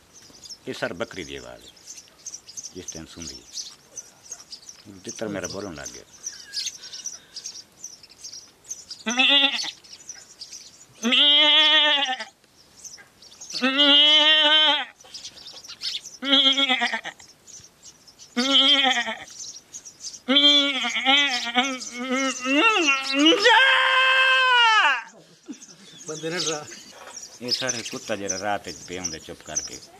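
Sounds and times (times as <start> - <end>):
man imitating goat bleats: 11.0 - 12.3, 13.6 - 15.0, 16.2 - 17.2, 18.4 - 19.3, 20.3 - 25.1.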